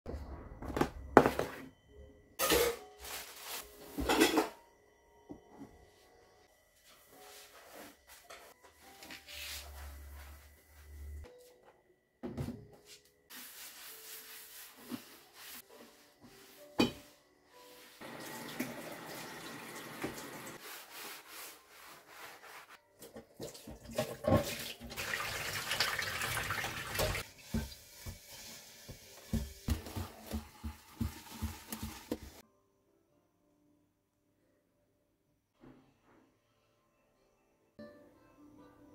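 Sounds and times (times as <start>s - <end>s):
sponge wiping and scrubbing: 9.3s - 10.9s, 13.3s - 18.1s, 20.6s - 22.8s, 26.9s - 32.4s
water running from tap: 18.0s - 20.6s, 23.4s - 29.4s, 30.2s - 32.4s.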